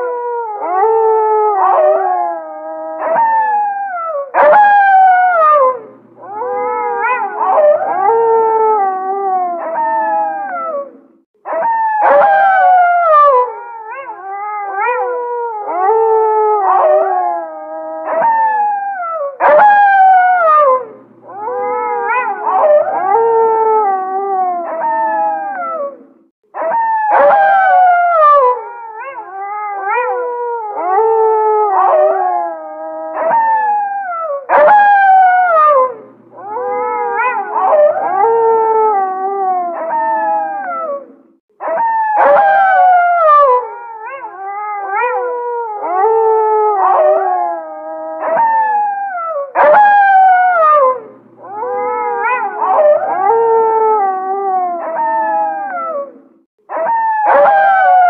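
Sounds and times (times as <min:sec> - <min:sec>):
wolves howling in chorus: 0:00.0 - 0:58.0.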